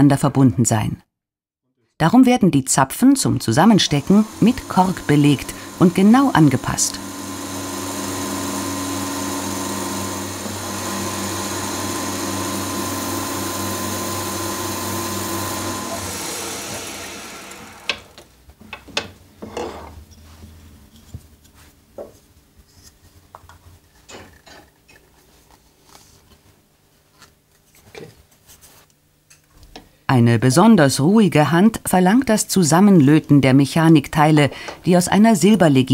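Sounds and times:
power tool humming: 0:03.5 - 0:18.2.

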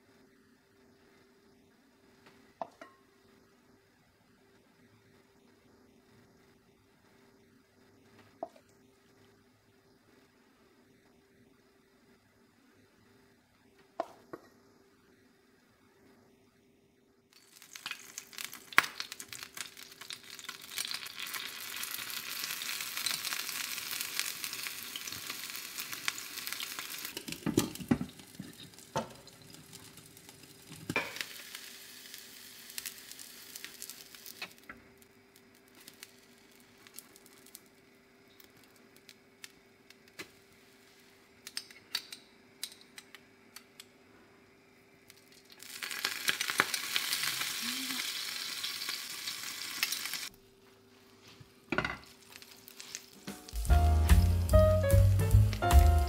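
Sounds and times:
pancakes sizzling in pan: 0:17.3 - 0:41.2, 0:45.1 - 0:50.3, 0:51.8 - 0:56.0.

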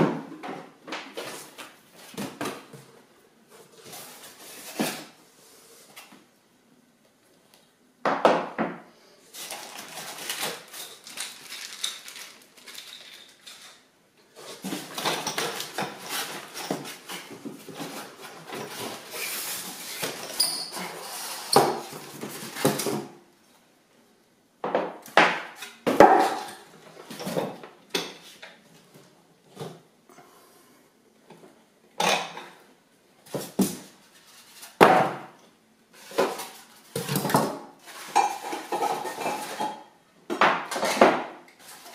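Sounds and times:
cardboard and styrofoam rustling: 0:09.3 - 0:13.4, 0:14.3 - 0:23.1.

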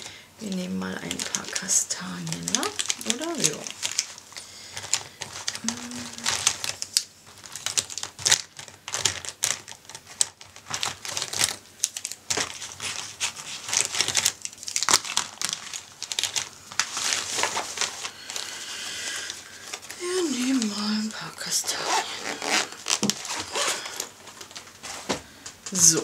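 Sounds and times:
plastic pens clicking and rattling: 0:00.4 - 0:17.1
fabric pencil case rustling: 0:21.6 - 0:25.2.

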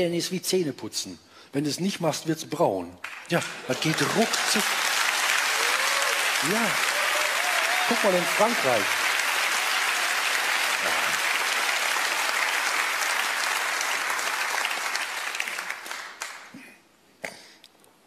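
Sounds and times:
audience applauding: 0:03.0 - 0:16.6.

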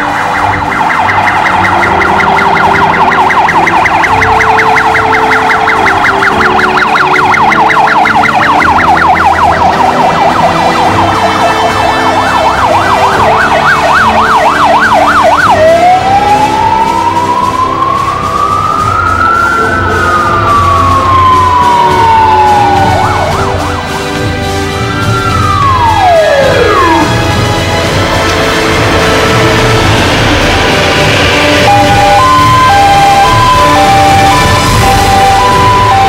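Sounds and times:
fire engine sirens yelping and wailing: 0:00.0 - 0:36.0.

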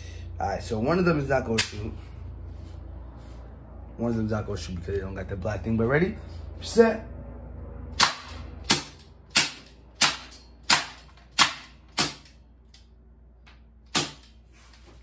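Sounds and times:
gas bb revolver firing: 0:08.0 - 0:12.3.

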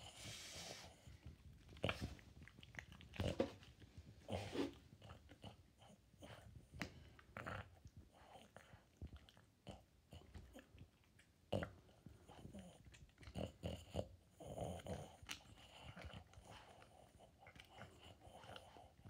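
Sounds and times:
dog noisy breathing: 0:00.0 - 0:01.3, 0:04.2 - 0:05.0
dog gnawing on bone: 0:01.0 - 0:19.0.

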